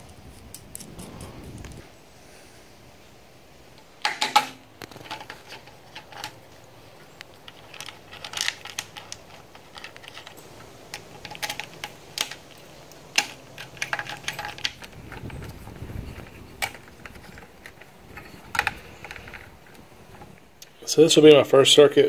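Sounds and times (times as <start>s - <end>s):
hands handling wires clicking: 3.7s - 20.8s.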